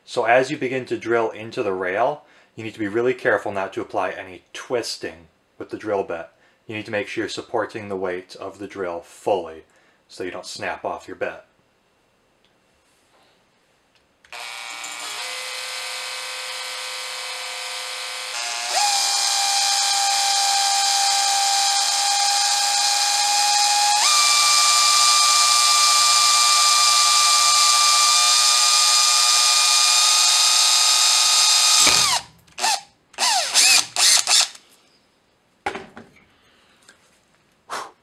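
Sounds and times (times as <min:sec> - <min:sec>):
small electric drill whine: 0:14.3 - 0:34.6.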